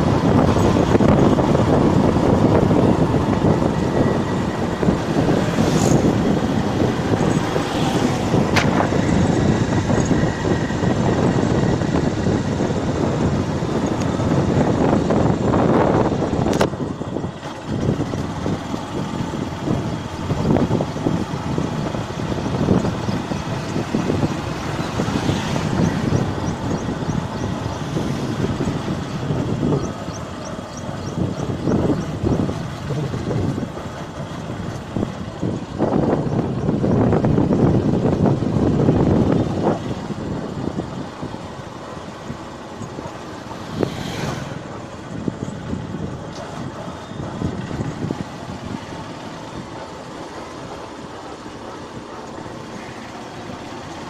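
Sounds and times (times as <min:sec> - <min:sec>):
motorcycle riding noise: 0:00.0 - 0:54.0
road traffic: 0:00.0 - 0:54.0
wind buffeting microphone: 0:00.0 - 0:54.0
vehicle passing: 0:43.3 - 0:45.4.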